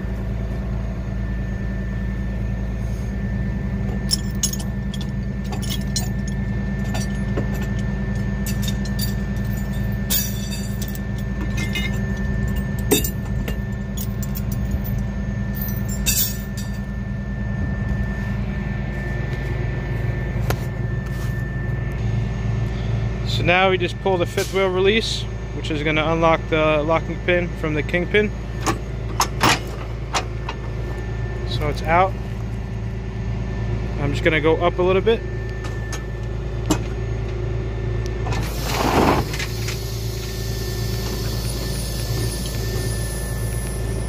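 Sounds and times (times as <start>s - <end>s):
truck engine idling: 0.0s - 44.0s
chain clinking and rattling: 3.9s - 16.9s.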